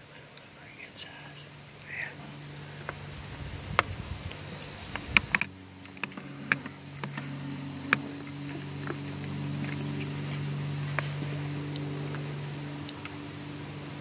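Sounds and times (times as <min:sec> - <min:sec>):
crickets trilling: 0:00.0 - 0:14.0
sharp clicks: 0:03.7 - 0:08.1.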